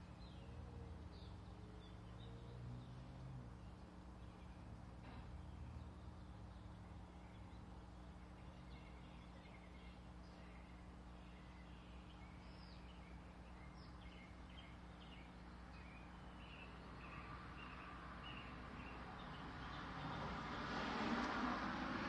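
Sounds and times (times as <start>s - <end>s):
low electrical hum: 0.0s - 19.4s
faint bird chirps: 4.2s - 19.4s.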